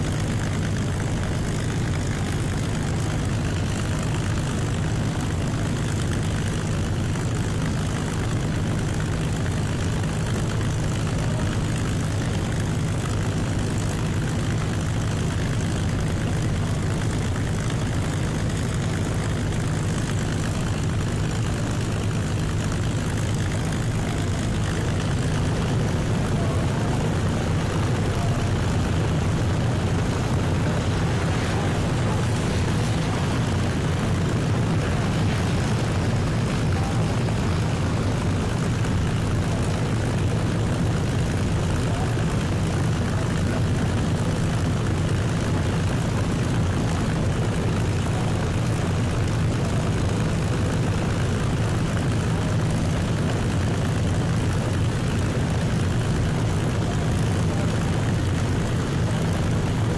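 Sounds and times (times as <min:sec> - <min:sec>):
deep drone of propeller engines: 0:00.0 - 0:59.9.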